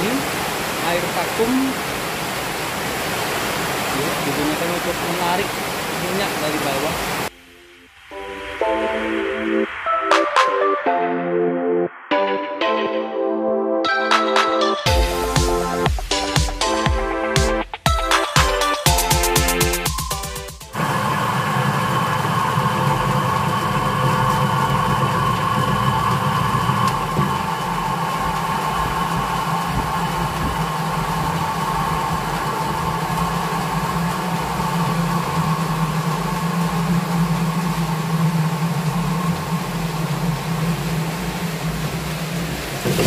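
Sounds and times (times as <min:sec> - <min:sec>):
centrifugal spinner motor hum: 0:00.0 - 0:07.4, 0:18.6 - 0:43.0.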